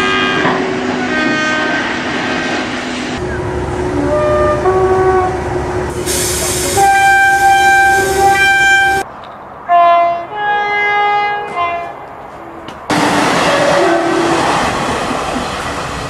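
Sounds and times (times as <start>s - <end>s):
locomotive air horn blasts: 0.0s - 1.9s, 3.9s - 9.0s, 9.7s - 12.0s, 13.4s - 14.5s
moving train rumble: 0.0s - 16.0s.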